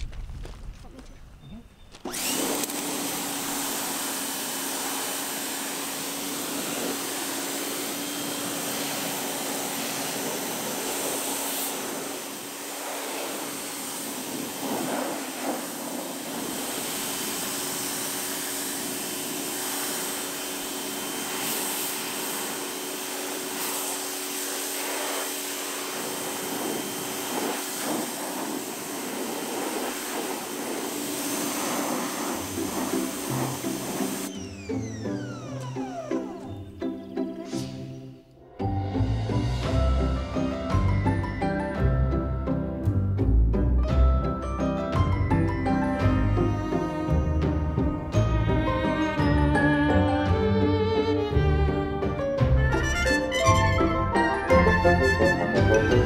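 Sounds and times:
pressure washer jet hissing on metal: 2.1s - 34.8s
machine hum: 32.4s - 37.5s.

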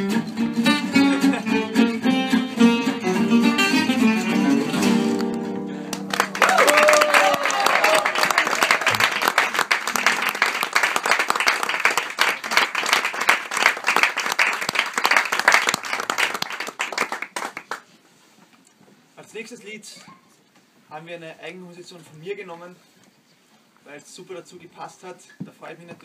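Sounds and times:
small group applauding: 5.8s - 17.9s.

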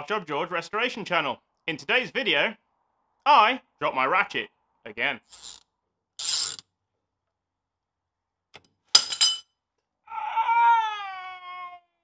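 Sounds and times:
metal ratchet clinking: 5.3s - 5.6s, 6.2s - 6.6s, 8.9s - 9.5s.

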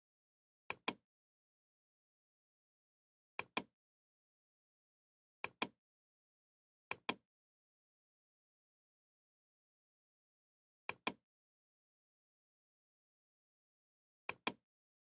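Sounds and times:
mouse button clicking: 5.4s - 5.8s, 14.3s - 14.6s.

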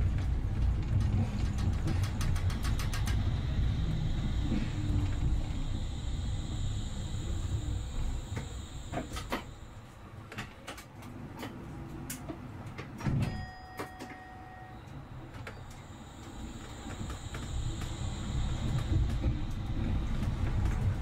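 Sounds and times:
low running rumble: 0.0s - 9.9s, 15.8s - 21.0s
steady beep: 1.8s - 9.9s, 15.4s - 21.0s.

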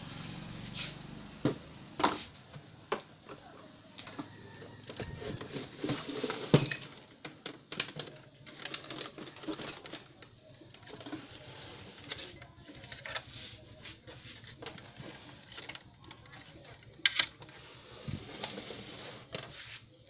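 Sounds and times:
tools clicking and knocking: 15.5s - 17.5s.

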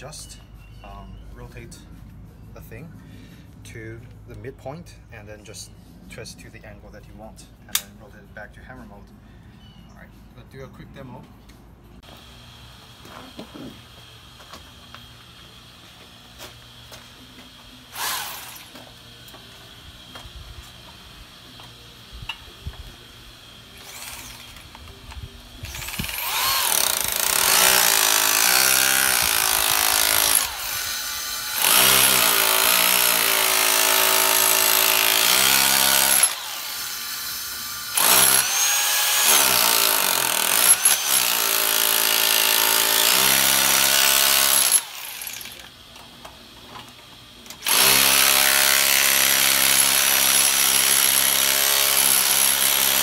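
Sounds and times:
rotary hammer chiselling concrete: 31.6s - 36.4s, 38.0s - 45.6s, 47.6s - 53.0s.

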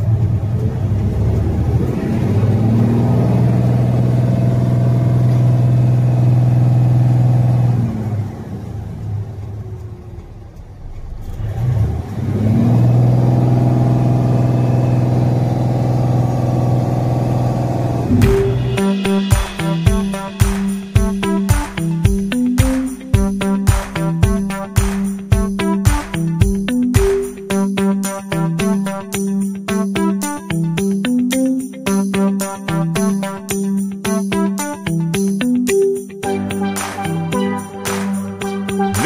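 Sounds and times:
diesel engine revving: 0.0s - 20.4s.

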